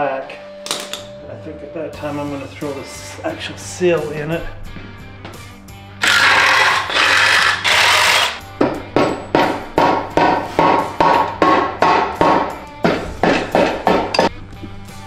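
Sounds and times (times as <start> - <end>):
mallet striking metal case: 0.6 - 1.1.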